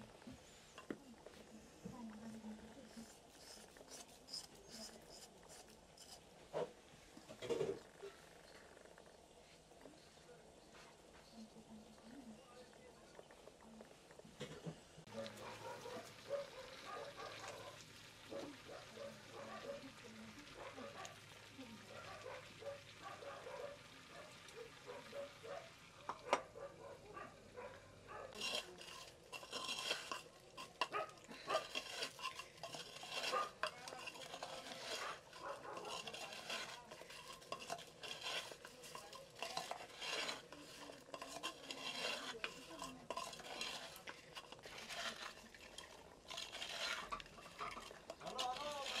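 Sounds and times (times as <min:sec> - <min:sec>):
metal spoon scraping clay pot: 0:02.6 - 0:09.0, 0:28.3 - 0:49.0
light handling sounds: 0:28.3 - 0:49.0.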